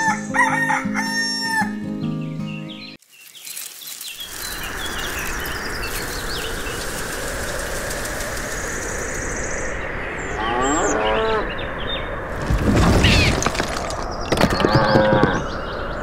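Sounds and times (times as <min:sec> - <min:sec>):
birds chirping: 0:01.8 - 0:16.0
steady rushing noise: 0:04.2 - 0:10.2
cow mooing: 0:10.4 - 0:11.5.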